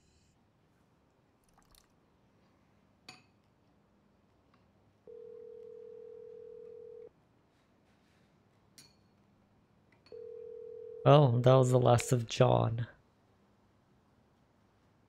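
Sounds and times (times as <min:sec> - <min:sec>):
telephone ringback tone: 0:05.1 - 0:07.1, 0:10.1 - 0:11.1.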